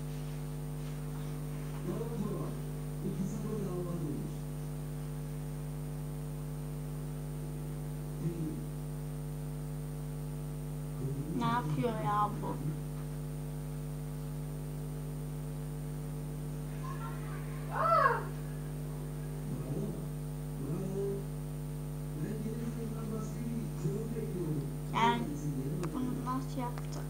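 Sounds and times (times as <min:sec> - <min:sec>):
electrical hum: 0:00.0 - 0:27.0
voice-like pitched sound: 0:17.0 - 0:18.4.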